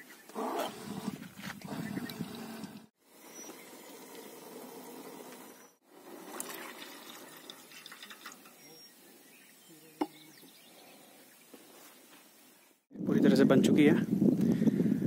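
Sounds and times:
milk pouring: 0:05.9 - 0:08.6
tea bubbling in a pot: 0:05.9 - 0:08.6.

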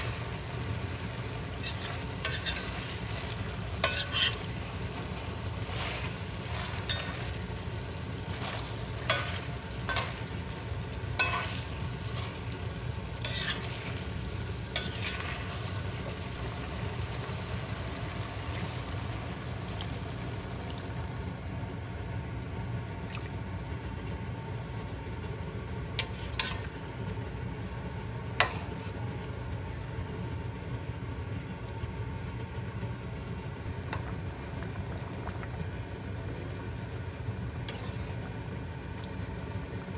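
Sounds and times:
food sizzling in pot: 0:00.0 - 0:20.6.

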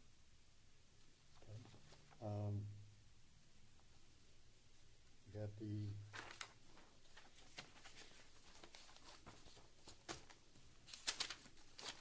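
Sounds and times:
paper rustling and clicking: 0:06.1 - 0:12.0.

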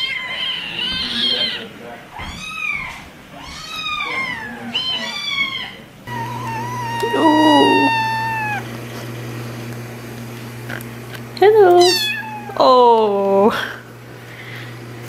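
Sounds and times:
kittens meowing: 0:00.0 - 0:08.7, 0:11.7 - 0:12.8.

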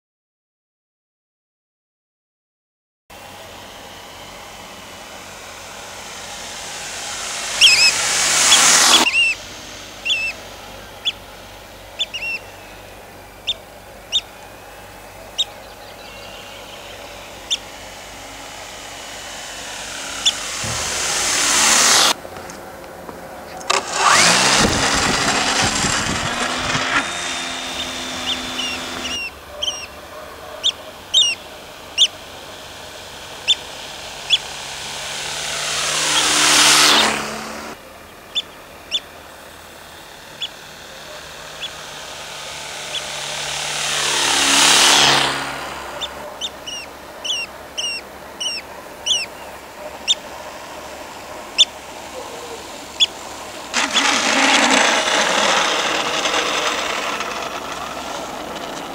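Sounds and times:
model plane electric motor whining: 0:03.1 - 0:58.9
bird chirps: 0:05.9 - 0:22.1, 0:27.4 - 0:32.2, 0:33.3 - 0:34.6, 0:38.0 - 0:39.2, 0:40.3 - 0:41.9, 0:42.8 - 0:43.2, 0:46.0 - 0:50.4, 0:51.5 - 0:53.2.

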